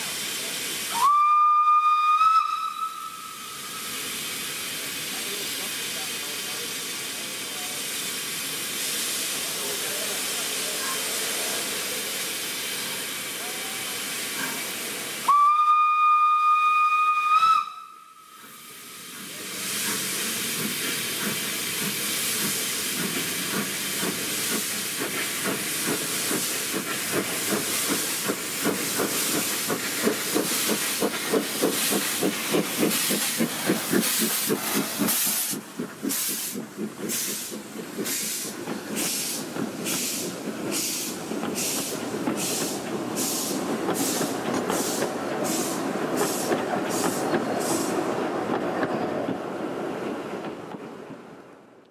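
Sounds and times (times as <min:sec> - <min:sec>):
hissing steam: 0:00.0 - 0:51.2
steam locomotive whistle: 0:00.9 - 0:03.9, 0:15.2 - 0:18.4
locomotive chuffing: 0:19.1 - 0:49.0.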